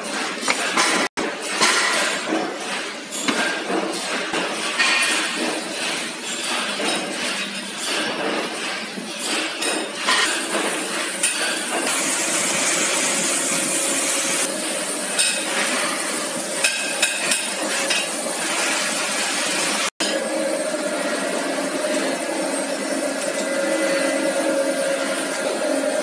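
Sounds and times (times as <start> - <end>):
machinery running: 10.4 - 26.0.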